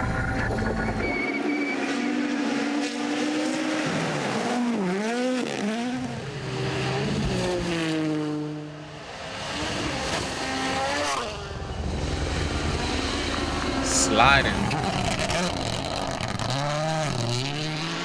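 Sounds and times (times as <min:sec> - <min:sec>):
rally car engines revving: 0:00.0 - 0:18.0.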